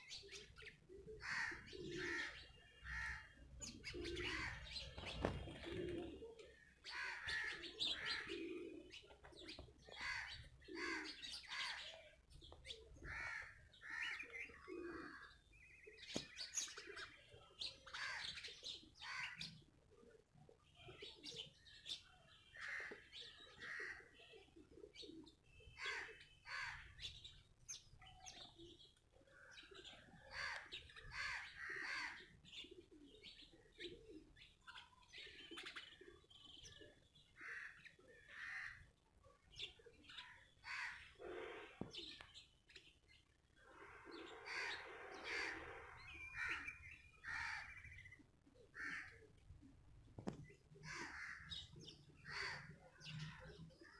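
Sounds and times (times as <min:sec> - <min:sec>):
sparrows chirping: 0:00.0 - 0:53.9.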